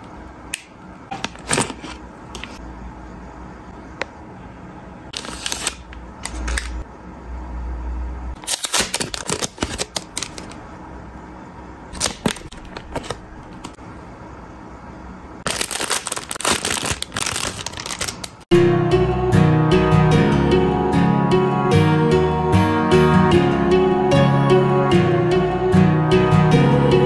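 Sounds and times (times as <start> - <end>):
plastic packaging crinkling: 5.1 - 6.6, 8.4 - 10.6, 11.9 - 13.8, 15.4 - 18.4.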